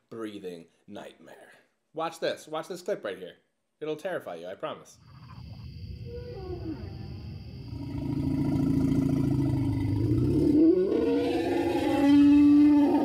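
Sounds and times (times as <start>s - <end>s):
low-pitched elephant call: 6.0s - 13.0s
orca call: 10.4s - 13.0s.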